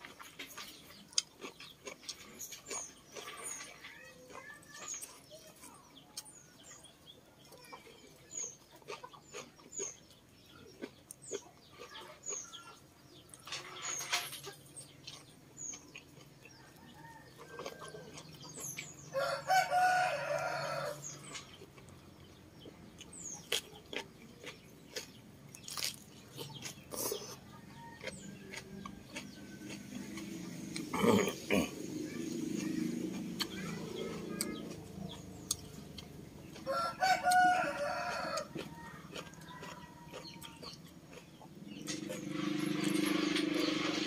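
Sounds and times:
chewing and slurping noodles: 0.0s - 5.7s, 6.6s - 14.0s, 14.6s - 19.5s, 21.0s - 37.3s, 38.4s - 44.0s
rooster crowing: 19.1s - 21.0s, 36.7s - 38.6s.

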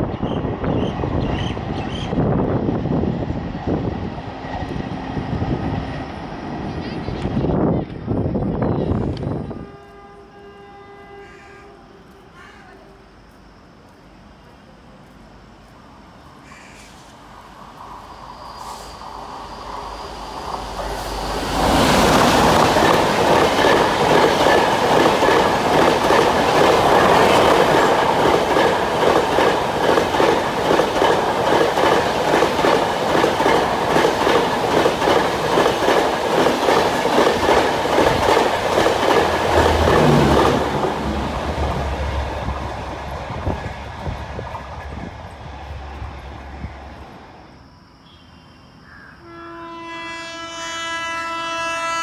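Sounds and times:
diesel locomotive rushing past: 0.0s - 13.4s, 15.4s - 47.8s
distant train horn: 9.3s - 13.2s, 39.4s - 42.3s, 48.1s - 52.0s
train wheels clickety-clack: 19.7s - 41.0s.

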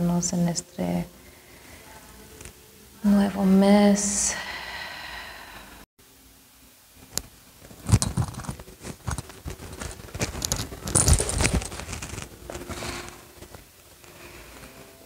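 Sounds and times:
clothing rustling: 7.6s - 15.0s
footsteps: 7.7s - 14.8s.

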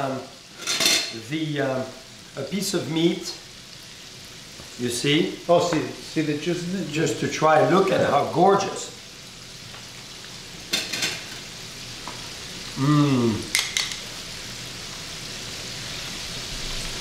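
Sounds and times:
oil sizzling in a frying pan: 0.0s - 17.0s
cutlery clinking: 0.6s - 1.2s, 10.7s - 11.4s, 13.5s - 14.0s
man humming: 12.7s - 13.5s.

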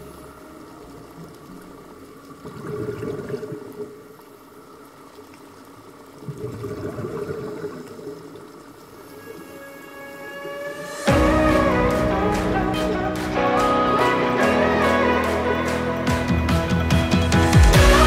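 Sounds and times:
underwater breath bubbles gurgling: 2.3s - 4.2s, 6.2s - 9.6s.

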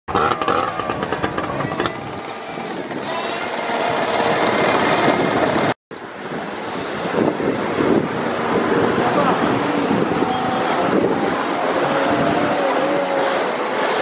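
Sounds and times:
vehicle engine running: 0.1s - 5.8s.

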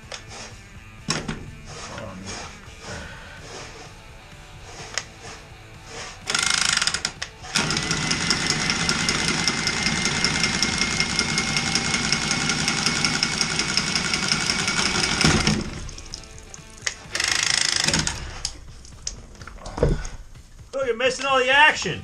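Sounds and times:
pipe cutter motor whine: 6.2s - 18.6s.

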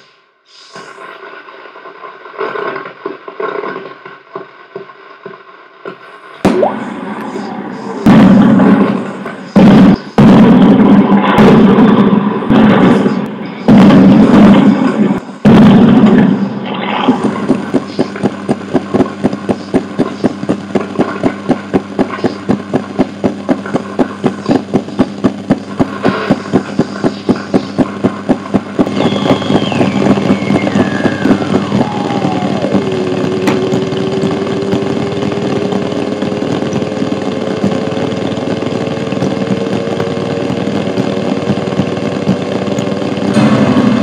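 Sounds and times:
low drone: 6.5s - 44.0s
heavy booming hits: 8.0s - 44.0s
steady ticking pulse: 17.2s - 44.0s
whistling tone gliding down: 28.8s - 34.4s.

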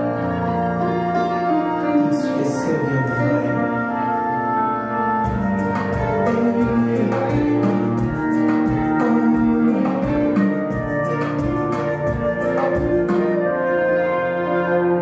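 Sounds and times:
held chords: 0.0s - 15.0s
steady beat: 5.2s - 13.5s.

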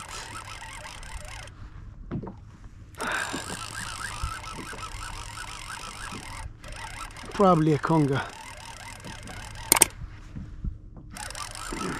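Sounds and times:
fishing reel cranking: 0.0s - 1.6s, 3.0s - 10.0s, 11.1s - 11.9s.

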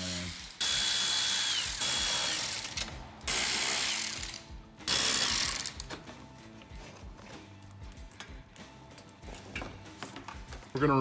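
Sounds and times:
power ratchet buzzing: 0.0s - 6.0s.

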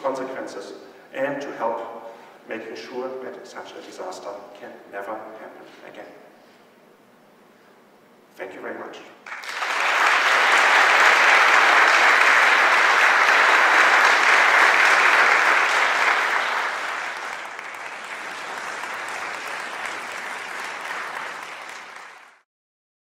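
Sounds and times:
audience applauding: 9.2s - 22.4s.

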